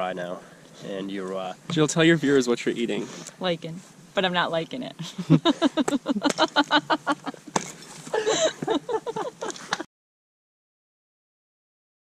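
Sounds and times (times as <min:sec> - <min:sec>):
woman laughing: 0:05.0 - 0:09.9.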